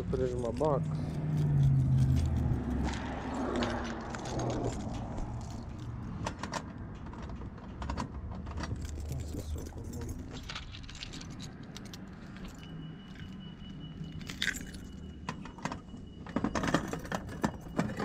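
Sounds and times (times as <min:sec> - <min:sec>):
keys jangling: 0:01.0 - 0:13.4, 0:14.1 - 0:15.7.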